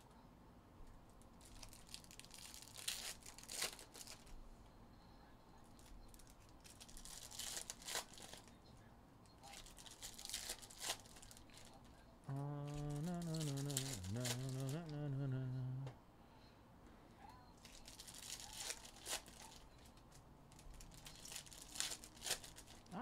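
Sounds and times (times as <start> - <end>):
foil wrappers tearing and crinkling: 1.4 - 4.3, 6.2 - 8.5, 9.5 - 11.7, 12.6 - 14.9, 17.6 - 19.6, 20.6 - 23.0.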